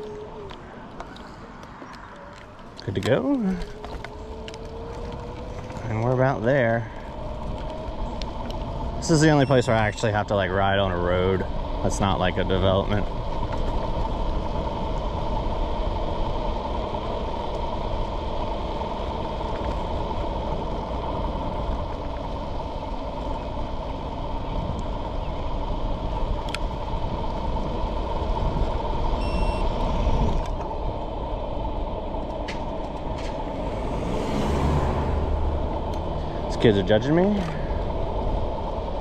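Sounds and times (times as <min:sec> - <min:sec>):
tyre rumble on asphalt: 0:00.0 - 0:31.0
wind buffeting microphone: 0:00.0 - 0:39.0
electric motor whine: 0:02.4 - 0:39.0.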